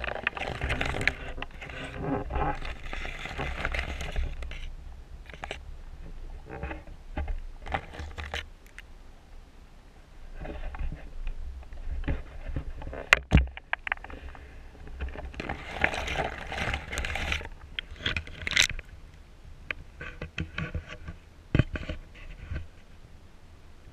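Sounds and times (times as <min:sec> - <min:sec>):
rushing scraping underwater: 0:00.0 - 0:08.4, 0:13.9 - 0:18.7.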